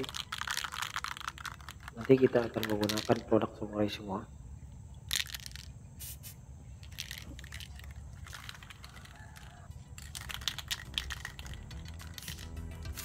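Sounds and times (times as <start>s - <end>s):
aerosol spray can hissing: 6.0s - 6.4s, 10.3s - 13.0s.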